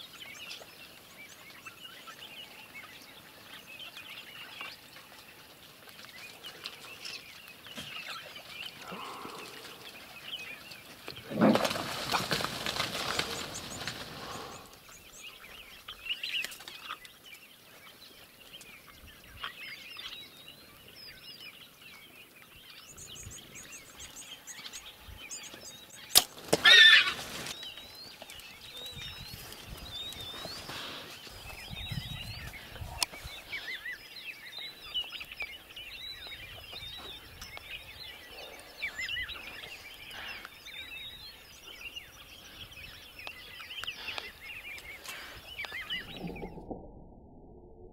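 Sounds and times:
small birds chirping: 0:00.0 - 0:46.7
rustling rushing noise: 0:11.3 - 0:14.6.

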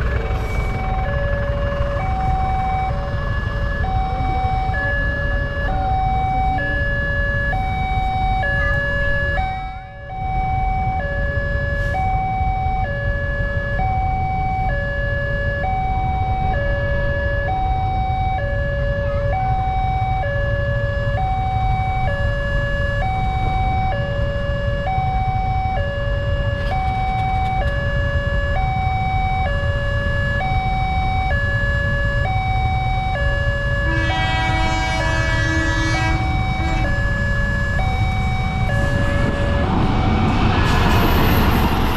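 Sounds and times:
two-tone level crossing alarm: 0:00.2 - 0:41.2.

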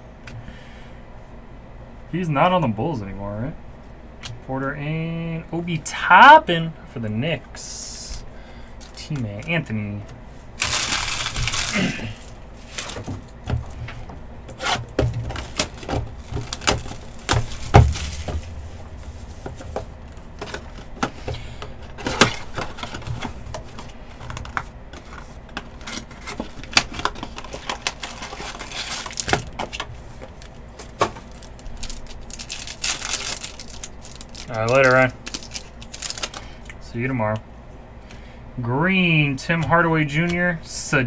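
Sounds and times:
cards rustling: 0:10.6 - 0:36.7.

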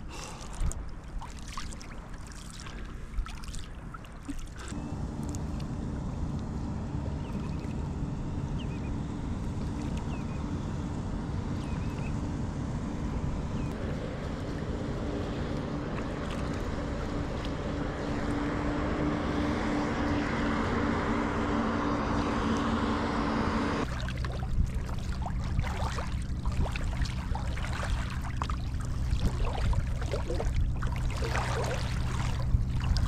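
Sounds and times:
water rushing around a kayak: 0:00.0 - 0:06.1, 0:13.2 - 0:23.0, 0:23.8 - 0:33.0
low mechanical hum: 0:00.0 - 0:33.0
water slapping against hull: 0:00.1 - 0:05.8, 0:13.5 - 0:19.5, 0:23.8 - 0:33.0.

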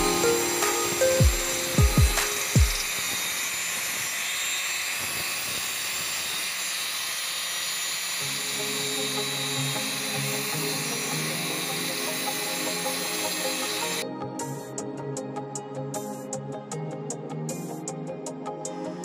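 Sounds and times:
background music: 0:00.0 - 0:02.9, 0:08.2 - 0:19.0
steady high hiss: 0:00.0 - 0:14.0.

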